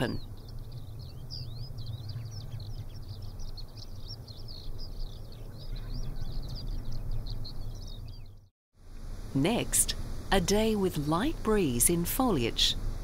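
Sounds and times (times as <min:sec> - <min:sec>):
steady low rumble: 0:00.0 - 0:08.4
small birds chirping: 0:00.0 - 0:09.7
faint wind turbine running: 0:00.0 - 0:13.0.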